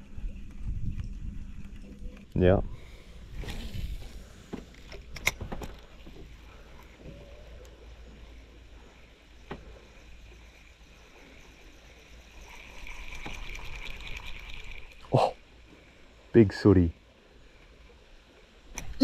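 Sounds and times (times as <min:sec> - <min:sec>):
steady low rumble: 0:00.0 - 0:05.1.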